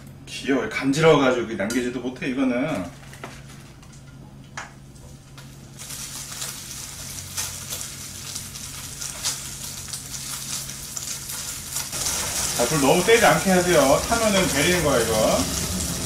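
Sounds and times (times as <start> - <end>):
steady low hum: 0.0 - 16.0
food sizzling in frying pan: 5.7 - 16.0.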